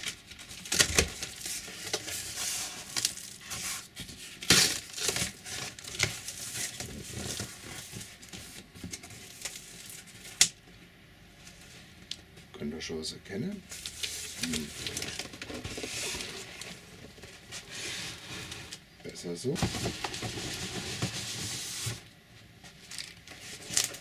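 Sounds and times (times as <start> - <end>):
cardboard rustling and tearing: 0.0 - 10.4, 13.7 - 18.8, 19.6 - 22.1
cardboard scraping: 13.7 - 18.8, 19.6 - 22.1.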